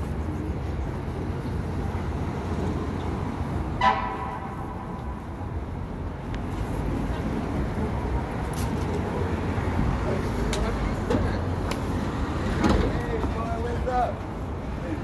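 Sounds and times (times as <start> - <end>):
city street traffic rumble: 0.0 - 15.0
vehicle horn honk: 3.8 - 4.7.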